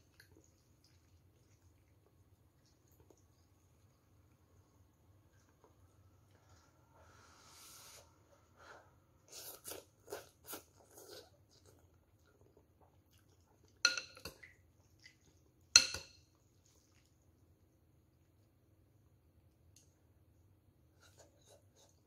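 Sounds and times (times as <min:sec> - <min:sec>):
spoon and chopsticks clinking bowl: 0:13.8 - 0:14.4, 0:15.8 - 0:16.4.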